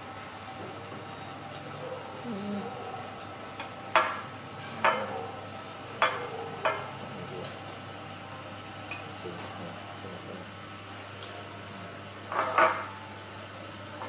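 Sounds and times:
dishes clinking on table: 0:03.6 - 0:05.2, 0:06.0 - 0:06.9, 0:08.9 - 0:09.5, 0:12.3 - 0:13.0.

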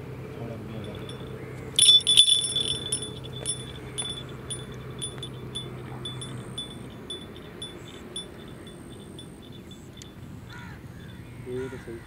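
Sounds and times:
low steady hum: 0:00.0 - 0:11.4
small metal bell tinkling: 0:00.8 - 0:10.2.

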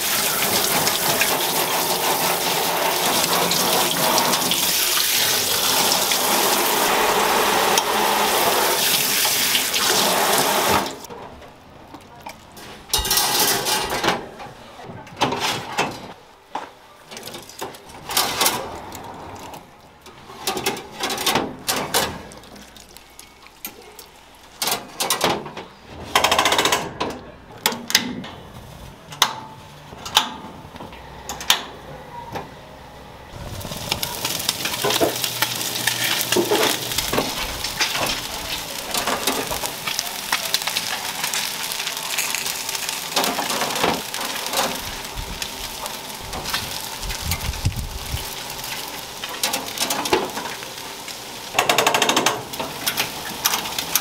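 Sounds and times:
fish sizzling on grill: 0:00.0 - 0:11.1, 0:20.5 - 0:24.7, 0:33.4 - 0:54.0
metal grill racks clinking: 0:12.6 - 0:14.3, 0:17.1 - 0:22.4, 0:33.9 - 0:45.0, 0:48.4 - 0:50.8, 0:51.5 - 0:54.0.

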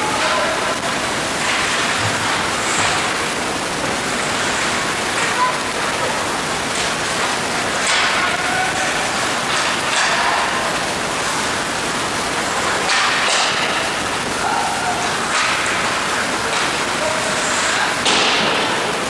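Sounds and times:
skates carving ice: 0:00.0 - 0:11.5, 0:12.4 - 0:19.0
distant shouts: 0:08.1 - 0:09.4, 0:14.3 - 0:15.4.

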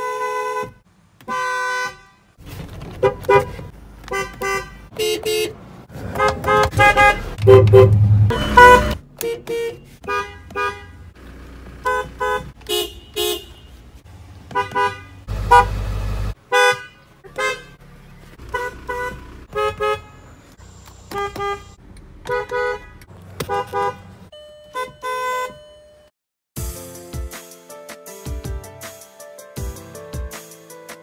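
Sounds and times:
long car horn blast: 0:06.1 - 0:11.0, 0:14.6 - 0:15.8
two-note car horn beeps: 0:06.2 - 0:10.9, 0:23.7 - 0:25.7
music: 0:26.6 - 0:31.0.

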